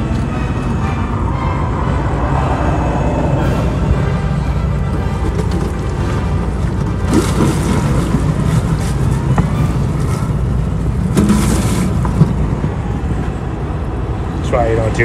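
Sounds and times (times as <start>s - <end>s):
low rumble: 0.0s - 14.4s.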